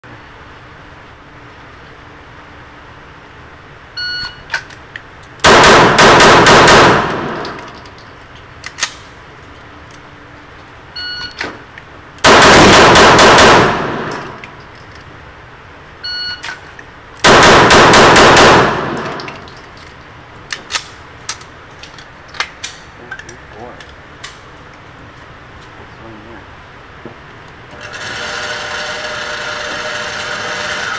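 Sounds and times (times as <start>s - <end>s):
shot timer beep: 4.0s - 4.5s, 11.0s - 11.4s, 16.0s - 16.4s
pistol shots echoing: 5.4s - 7.6s, 12.2s - 14.4s, 17.2s - 19.3s
sharp metal clinks: 7.3s - 8.4s, 19.1s - 20.5s.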